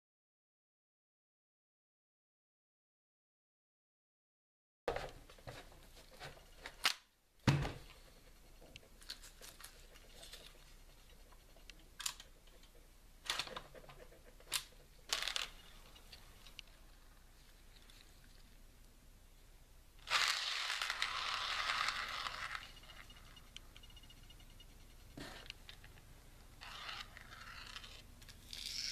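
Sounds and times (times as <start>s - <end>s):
gun mechanism clicks and clacks: 11.6s - 16.7s.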